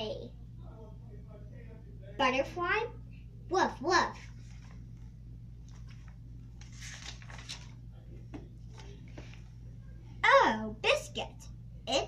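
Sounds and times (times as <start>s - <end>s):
steady low hum: 0.0s - 12.0s
book pages rustling: 4.2s - 9.6s.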